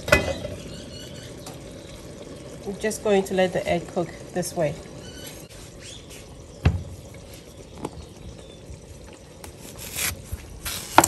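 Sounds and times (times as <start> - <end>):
stew simmering in covered pot: 0.0 - 11.0.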